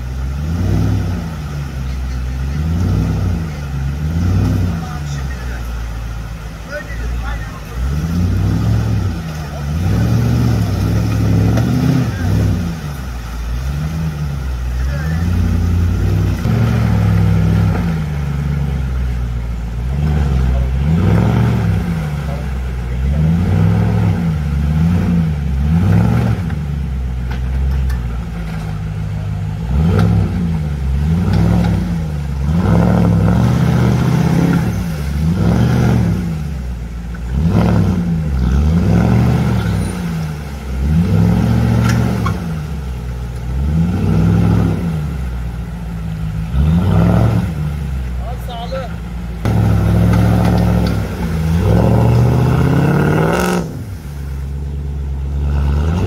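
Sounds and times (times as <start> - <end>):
off-road engine revving: 0.0 - 56.0
light clatter: 27.2 - 29.0.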